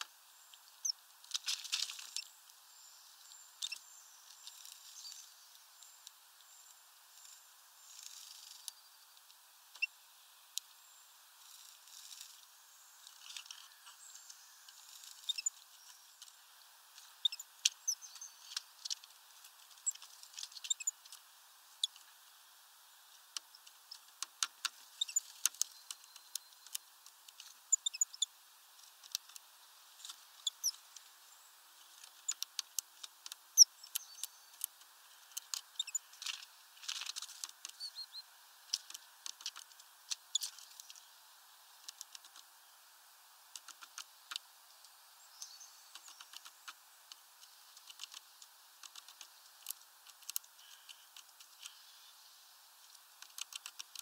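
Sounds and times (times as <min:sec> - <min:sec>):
high bird chirps: 0:17.2 - 0:18.4, 0:27.7 - 0:28.3, 0:35.7 - 0:36.1, 0:37.8 - 0:38.2.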